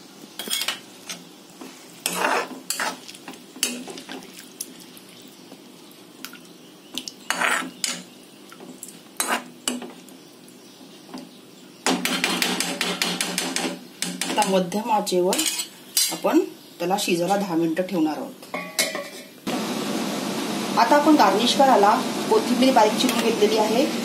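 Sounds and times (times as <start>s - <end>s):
steel spatula scraping a pan: 2.0s - 3.0s, 7.3s - 8.0s, 9.2s - 9.5s, 15.3s - 16.3s.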